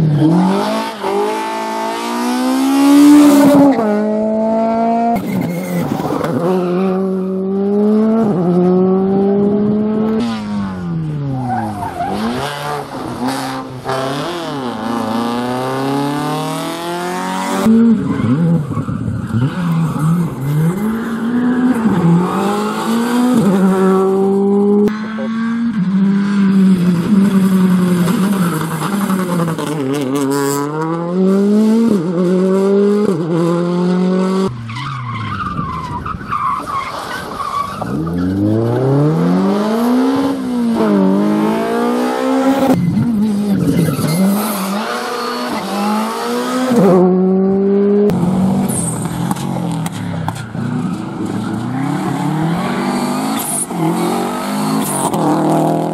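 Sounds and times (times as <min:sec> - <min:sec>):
rally car engines revving: 0:00.0 - 0:55.9.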